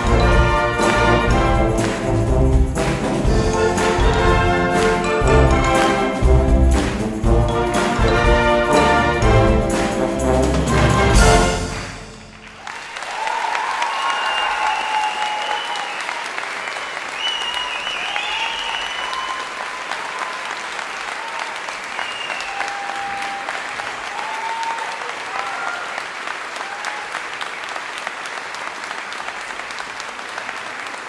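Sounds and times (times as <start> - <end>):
audience applauding: 0.0 - 31.0
audience calls: 0.0 - 31.0
high whistling: 17.0 - 19.5, 22.0 - 22.7.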